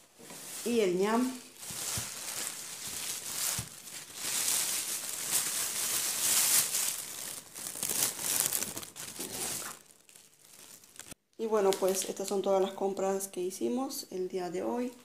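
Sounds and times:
plastic bag crinkling: 0.1s - 12.2s.

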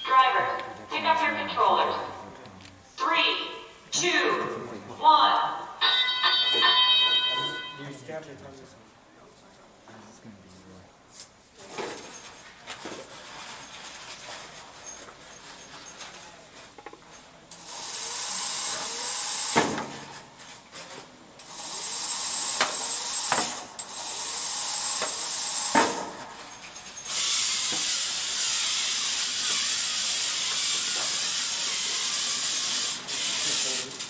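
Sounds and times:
robot motors whirring: 17.5s - 34.0s.

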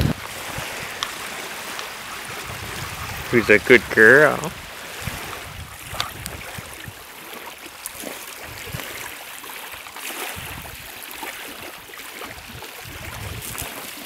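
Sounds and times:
waves lapping on pebbles: 0.0s - 14.0s
low microphone rumbles: 2.2s - 6.9s.

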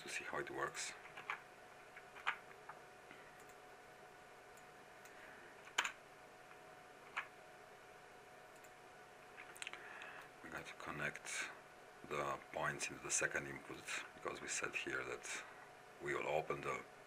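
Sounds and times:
faint steady background hum: 0.0s - 17.0s
keyboard and mouse clicks: 1.0s - 2.8s, 4.6s - 6.0s, 7.1s - 7.3s.

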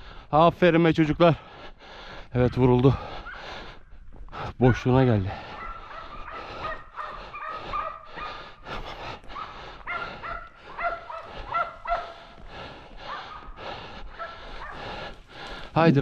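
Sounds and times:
dogs barking rapidly: 2.8s - 3.8s, 4.6s - 15.4s.

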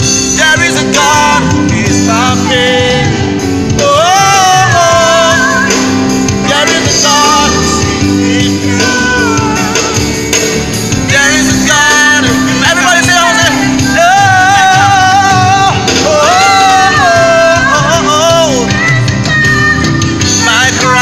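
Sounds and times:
gospel singing: 0.0s - 21.0s
keyboard and band accompaniment: 0.0s - 21.0s.

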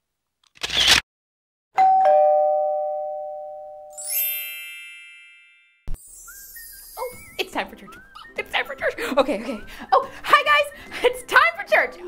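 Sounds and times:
bell-like chime notes: 1.8s - 7.0s
high sparkling shimmer: 3.9s - 7.4s.

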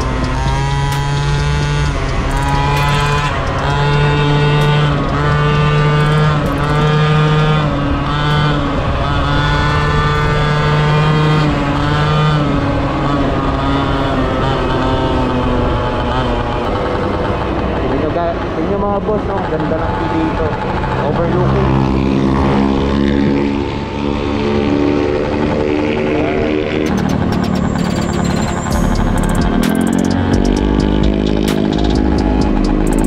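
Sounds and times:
scooter engine revving: 0.0s - 33.0s.

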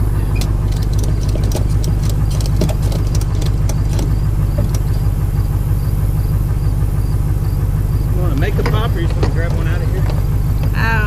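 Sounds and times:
vehicle engine idling: 0.0s - 11.0s
light clicks and knocks: 0.4s - 5.0s, 8.3s - 10.8s.

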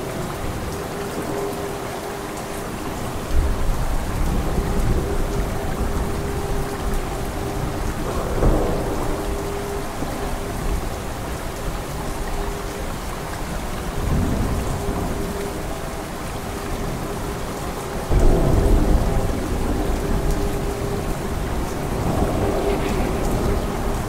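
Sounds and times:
heavy rain: 0.0s - 24.0s
rolling thunder: 2.9s - 12.3s, 13.8s - 24.0s
thunderclap: 7.0s - 11.1s, 18.1s - 24.0s.

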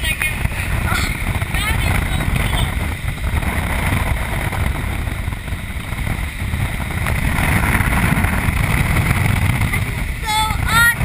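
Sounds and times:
wind rushing on microphone: 0.0s - 11.0s.

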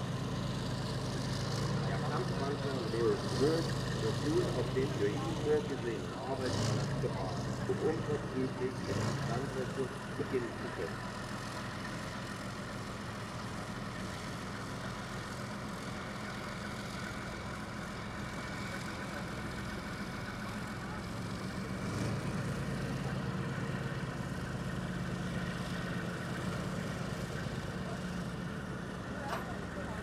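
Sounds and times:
tank diesel engine running: 0.0s - 30.0s.

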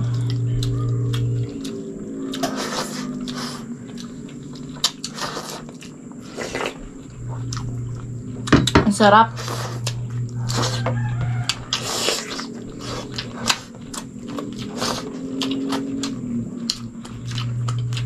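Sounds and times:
person humming low: 0.0s - 8.5s, 9.3s - 13.8s
wet chewing: 0.0s - 18.0s.

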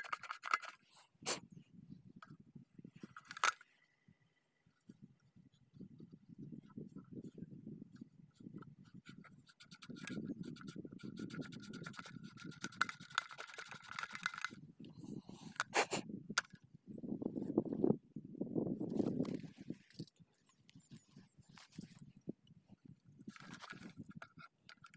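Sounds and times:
hand scraping metal rings: 0.0s - 1.1s, 4.8s - 15.8s.

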